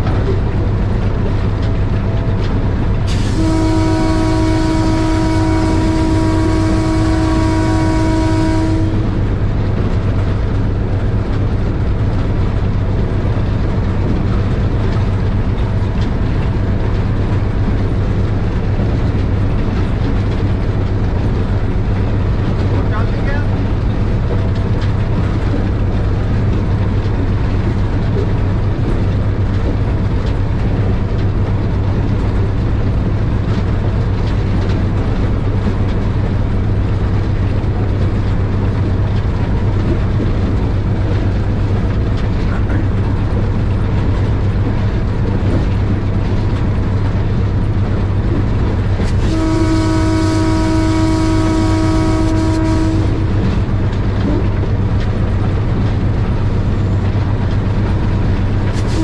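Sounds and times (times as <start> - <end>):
train rumbling along track: 0.0 - 59.0
train horn blast: 3.1 - 9.3, 49.0 - 53.8, 58.7 - 59.0.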